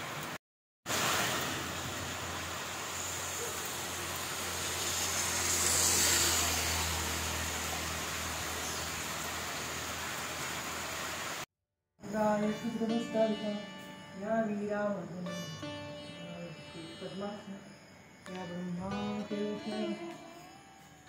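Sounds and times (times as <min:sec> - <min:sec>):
rain hiss: 0:00.0 - 0:11.5
vehicle engine humming: 0:02.4 - 0:10.0.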